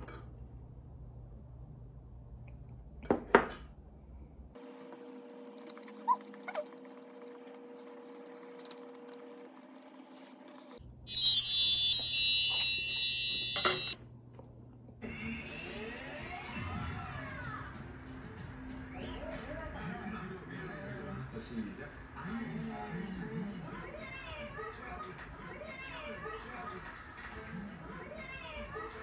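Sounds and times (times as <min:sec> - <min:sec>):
bright high chime: 0:11.1 - 0:14.0
tableware clinking: 0:11.1 - 0:14.0.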